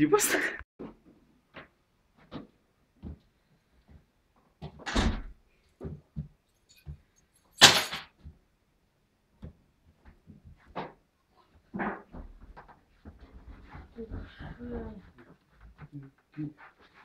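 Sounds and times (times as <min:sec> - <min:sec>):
door opening and shutting: 0:04.7 - 0:05.4.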